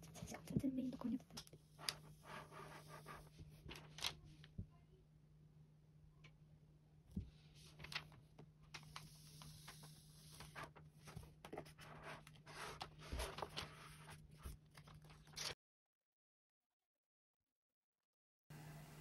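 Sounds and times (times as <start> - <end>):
plastic sheet crinkling: 12.5 - 15.6.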